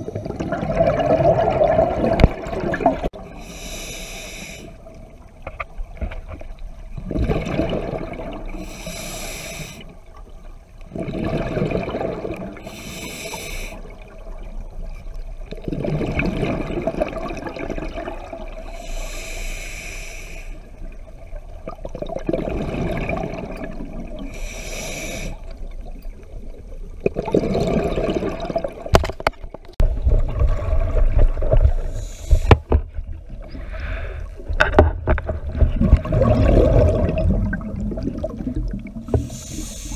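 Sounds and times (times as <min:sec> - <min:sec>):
exhaled bubbles rumbling: 0:00.0 - 0:03.4, 0:04.9 - 0:08.7, 0:10.3 - 0:12.7, 0:14.0 - 0:18.8, 0:20.7 - 0:24.4, 0:25.4 - 0:39.9
regulator hissing inhales: 0:03.4 - 0:04.8, 0:08.6 - 0:09.9, 0:12.6 - 0:13.9, 0:18.7 - 0:20.7, 0:24.3 - 0:25.5, 0:31.9 - 0:32.6, 0:39.2 - 0:39.9.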